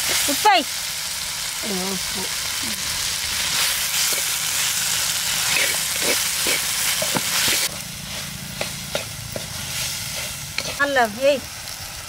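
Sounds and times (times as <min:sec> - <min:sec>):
vegetables sizzling in a pot: 0:00.0 - 0:12.0
metal spoon scraping a pot: 0:08.6 - 0:10.9.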